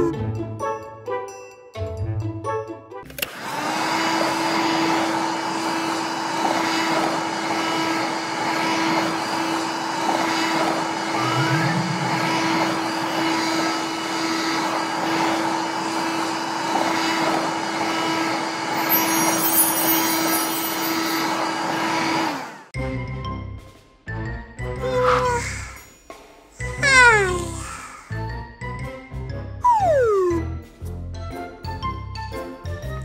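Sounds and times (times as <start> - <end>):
toy vacuum motor whirring: 3.1 - 22.7, 26.6 - 28.2.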